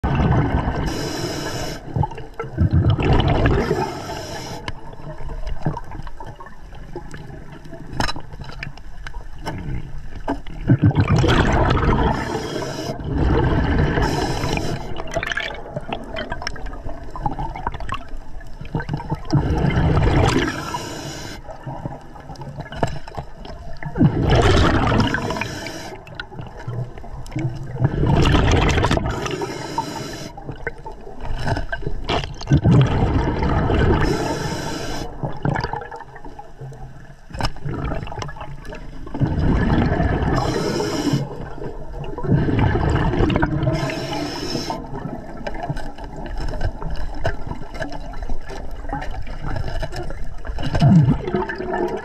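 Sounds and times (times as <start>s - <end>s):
regulator hissing inhale: 0.8s - 2.0s, 3.7s - 4.8s, 12.1s - 13.0s, 13.9s - 15.1s, 20.4s - 21.5s, 25.1s - 26.1s, 29.1s - 30.4s, 34.0s - 35.2s, 40.3s - 41.5s, 43.7s - 45.0s.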